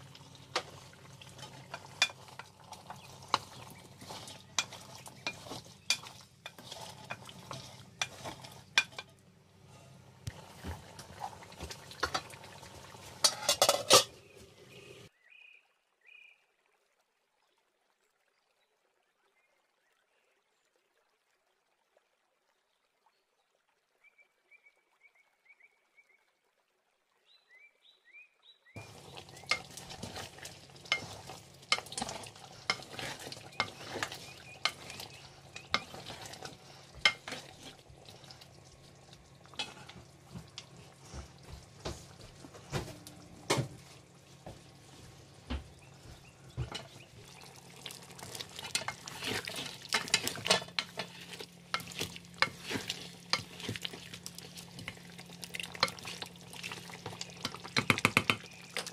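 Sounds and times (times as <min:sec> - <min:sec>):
food sizzling: 0:00.0 - 0:15.1, 0:28.8 - 0:58.9
spoon scraping metal pan: 0:00.4 - 0:12.3, 0:13.0 - 0:15.0, 0:28.8 - 0:38.6, 0:39.4 - 0:41.0, 0:48.0 - 0:55.0.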